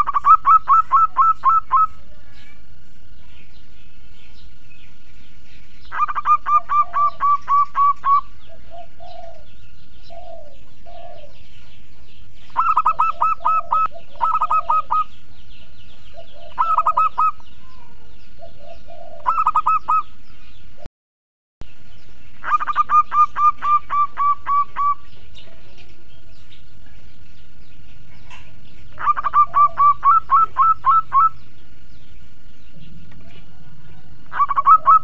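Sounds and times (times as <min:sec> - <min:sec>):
dove cooing: 0:00.0 - 0:02.6, 0:05.8 - 0:20.3, 0:22.4 - 0:26.4, 0:28.1 - 0:32.0, 0:32.8 - 0:35.0
small birds chirping: 0:00.0 - 0:20.9, 0:21.6 - 0:35.0.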